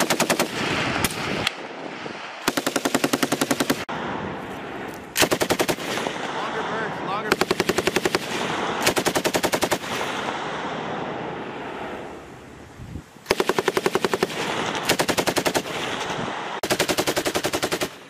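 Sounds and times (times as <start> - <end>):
machine gun firing bursts: 0.0 - 0.8, 2.4 - 3.9, 5.2 - 6.2, 7.3 - 10.3, 13.3 - 18.0.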